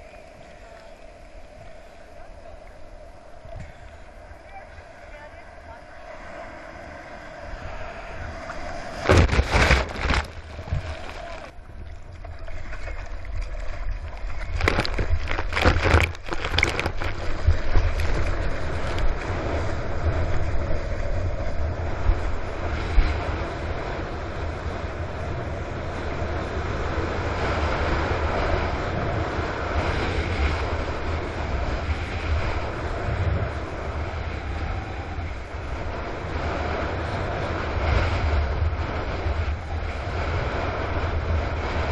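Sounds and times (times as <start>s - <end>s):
low drone: 0.0s - 41.9s
water and wind rushing: 0.0s - 41.9s
water slapping over camera: 9.0s - 19.3s.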